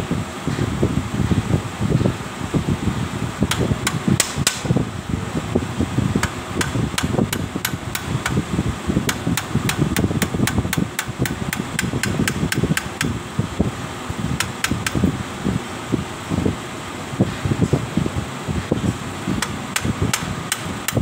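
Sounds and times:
hammer tapping on steel rod: 0:09.1 - 0:13.1, 0:14.4 - 0:15.0.

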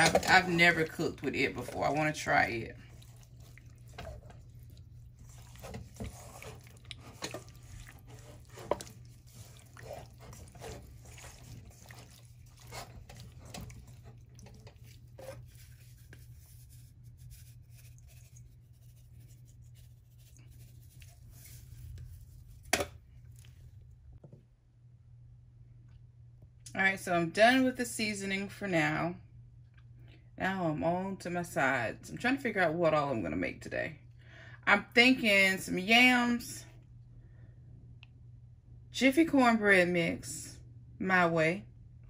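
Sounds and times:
raw chicken squelching in a pot: 0:00.0 - 0:24.1
low steady hum: 0:00.0 - 0:42.0.

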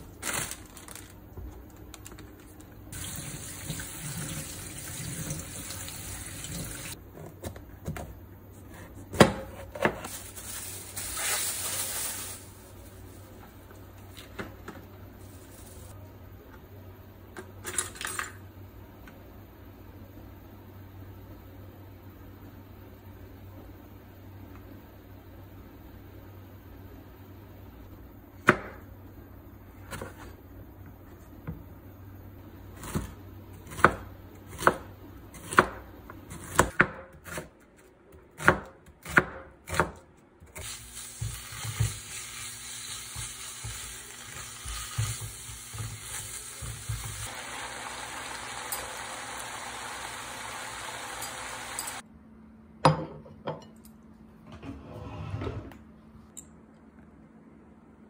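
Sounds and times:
beef sizzling in frying pan: 0:40.6 - 0:52.0.

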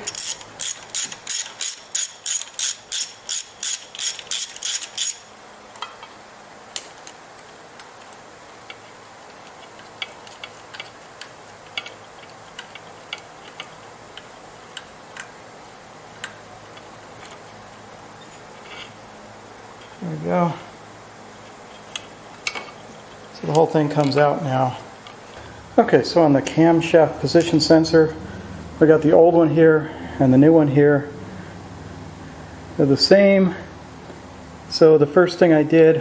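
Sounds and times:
ratchet wrench clicking: 0:00.0 - 0:05.3
metal parts clicking and tapping: 0:00.0 - 0:06.2, 0:06.8 - 0:15.3, 0:21.8 - 0:22.8.

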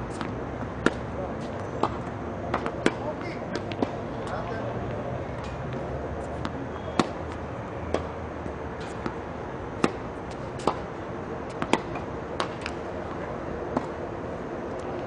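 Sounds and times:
racket hitting tennis ball: 0:00.1 - 0:04.4, 0:05.4 - 0:08.2, 0:08.8 - 0:09.2, 0:09.8 - 0:10.9, 0:11.5 - 0:14.0
ball bouncing on court: 0:01.7 - 0:04.4.

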